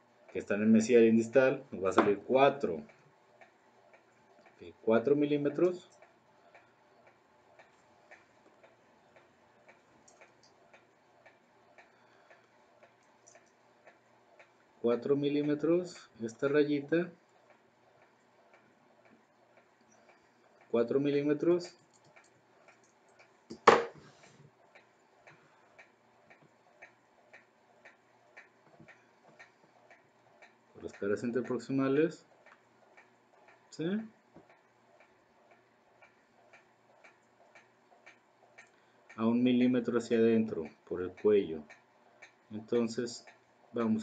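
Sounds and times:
faint steady ticking: 0:00.0 - 0:44.0
light clicks: 0:21.6 - 0:23.6
sharp knock: 0:23.5 - 0:24.0.

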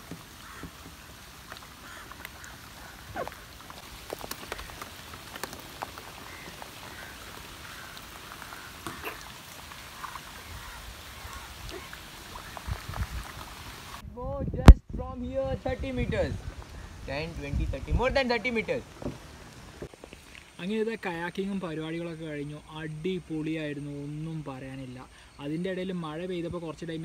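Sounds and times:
rain falling on water: 0:00.0 - 0:14.0, 0:15.6 - 0:27.0.

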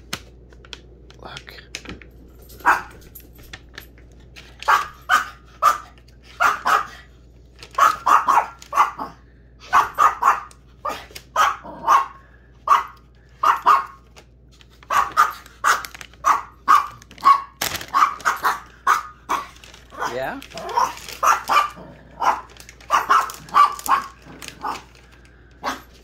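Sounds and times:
small dog yapping: 0:04.6 - 0:07.1, 0:07.8 - 0:14.0, 0:14.8 - 0:24.9.

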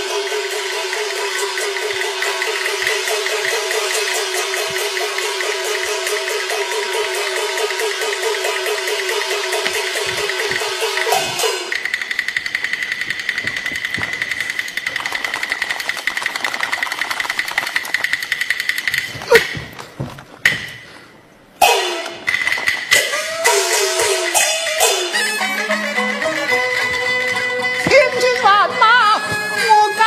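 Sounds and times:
cymbal crashes: 0:00.0 - 0:12.7, 0:21.6 - 0:25.3
drum rolls: 0:00.0 - 0:20.8.

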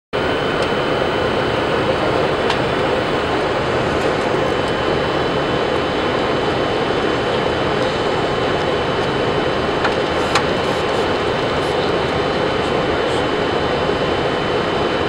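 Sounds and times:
airflow and jet engine noise: 0:00.2 - 0:15.0.

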